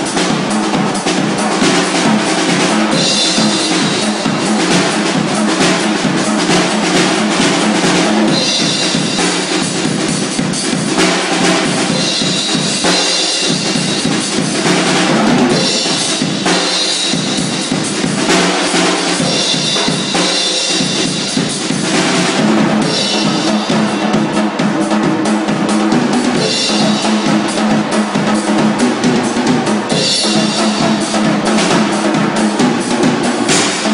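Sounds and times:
cymbals ringing: 0.0s - 33.9s
drum kit solo: 0.0s - 33.9s.

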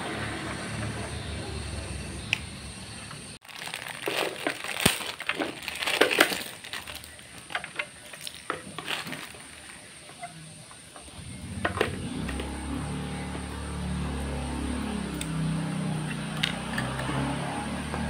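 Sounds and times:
plastic bag crinkling: 3.4s - 10.1s.

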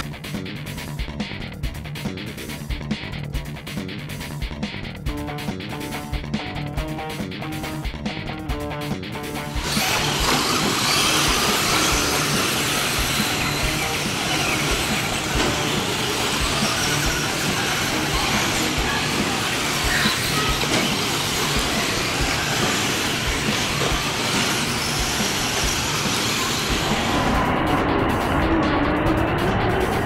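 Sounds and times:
music: 0.0s - 30.0s
rc trucks racing on dirt: 9.5s - 28.2s.

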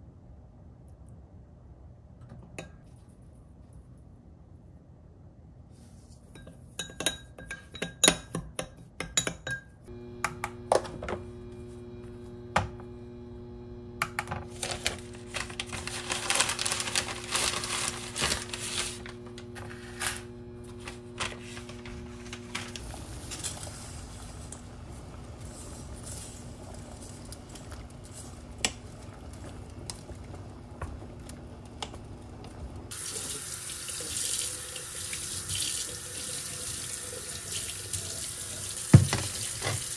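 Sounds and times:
dishes and utensils clinking: 6.3s - 9.8s
steady low hum: 9.9s - 32.9s
tap water running: 14.0s - 39.9s.

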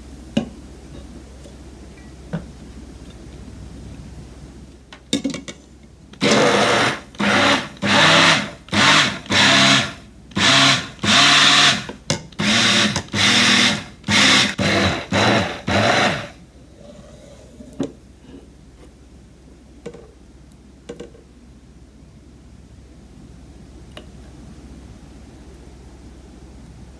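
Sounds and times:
immersion blender bursts: 6.2s - 16.4s.

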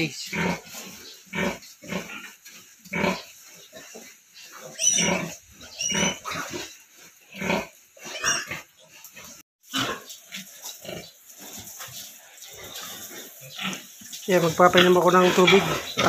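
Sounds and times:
piglets squealing: 4.7s - 6.5s
sow grunting: 14.4s - 16.0s.

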